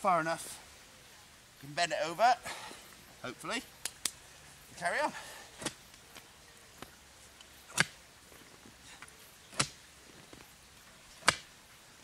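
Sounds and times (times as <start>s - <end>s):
spade chopping into turf: 7.7s - 8.0s, 11.2s - 11.4s.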